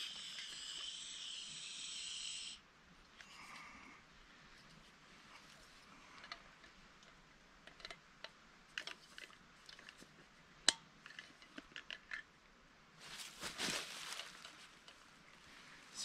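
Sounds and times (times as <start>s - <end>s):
small metal parts clicking and rattling: 7.6s - 8.0s.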